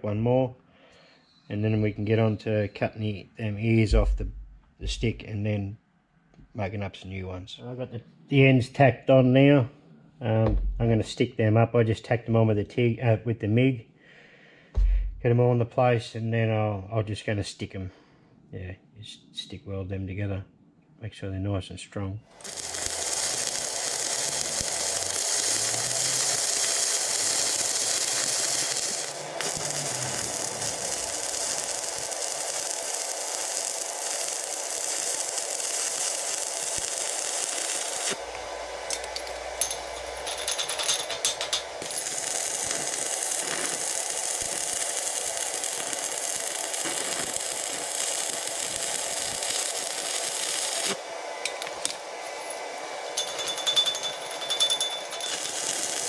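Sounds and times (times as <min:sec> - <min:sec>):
welding arc crackling and hissing: 0:22.4 - 0:56.0.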